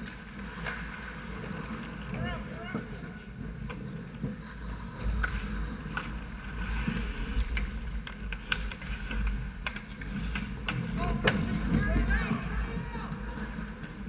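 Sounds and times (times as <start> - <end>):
clacks of sticks and puck: 0.0 - 14.0
skates scraping on ice: 0.0 - 14.0.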